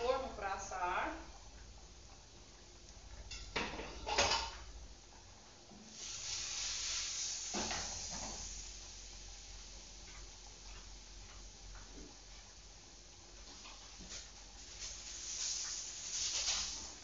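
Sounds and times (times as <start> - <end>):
grains rustling in shaken pan: 13.4 - 17.0.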